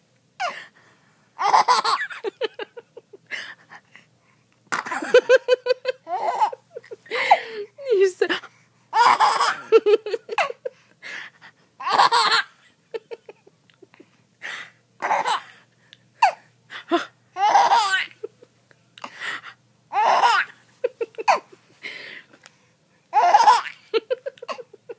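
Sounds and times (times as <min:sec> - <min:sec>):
baby laughing: 0:01.4 - 0:02.8, 0:04.8 - 0:07.5, 0:09.0 - 0:10.6, 0:11.8 - 0:12.5, 0:15.0 - 0:15.6, 0:17.4 - 0:18.4, 0:19.9 - 0:21.5, 0:23.2 - 0:24.8.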